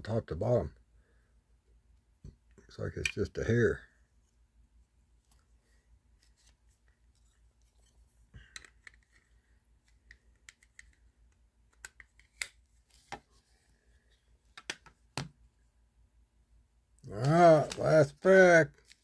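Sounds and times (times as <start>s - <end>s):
trading cards being handled: 5.2s - 15.4s, 17.1s - 19.0s.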